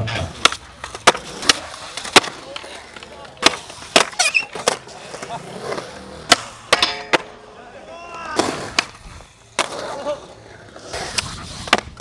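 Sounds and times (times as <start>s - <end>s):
skateboard wheels rolling on concrete: 0.0s - 12.0s
skateboards clacking on ground: 0.0s - 12.0s.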